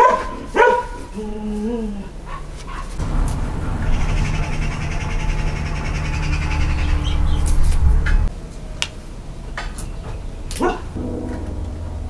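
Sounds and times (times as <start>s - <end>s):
birds chirping: 2.0s - 12.0s
low rumble: 2.8s - 8.5s, 10.0s - 12.0s.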